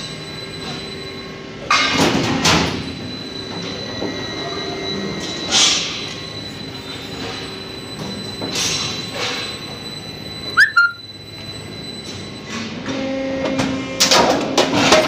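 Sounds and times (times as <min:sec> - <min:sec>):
brief squeak: 0:10.6 - 0:11.0.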